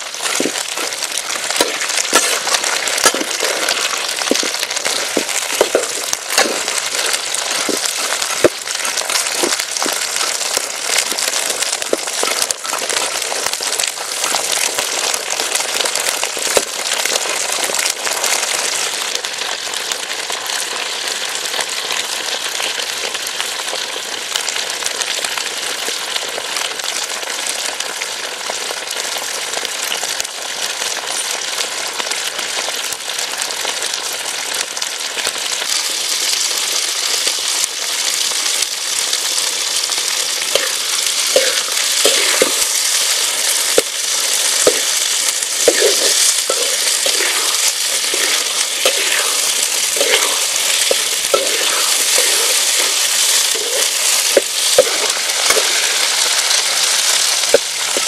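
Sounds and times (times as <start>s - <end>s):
frying in hot oil sizzling: 0.0s - 58.0s
spatula scraping a pan: 0.2s - 13.3s, 40.5s - 58.0s.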